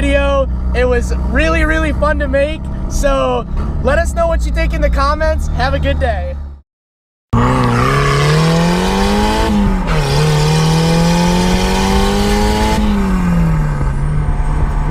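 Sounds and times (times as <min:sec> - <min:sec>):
car engine accelerating: 0:07.4 - 0:14.9.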